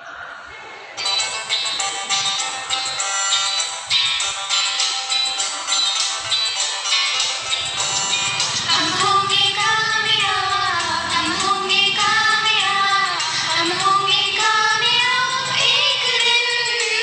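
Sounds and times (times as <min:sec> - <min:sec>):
musical accompaniment: 0:01.0 - 0:17.0
woman singing slow prayer song: 0:08.5 - 0:17.0.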